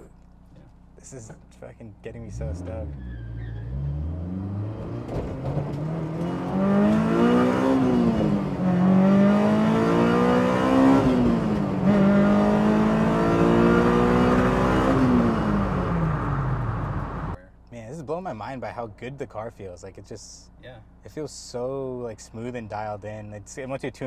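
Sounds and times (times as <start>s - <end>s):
car engine accelerating hard: 2.2s - 17.4s.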